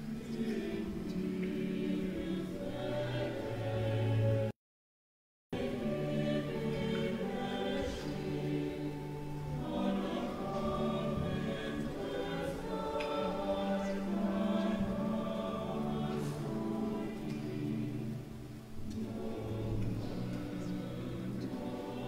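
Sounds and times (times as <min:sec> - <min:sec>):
choir singing held chords: 0:00.0 - 0:04.5, 0:05.6 - 0:22.0.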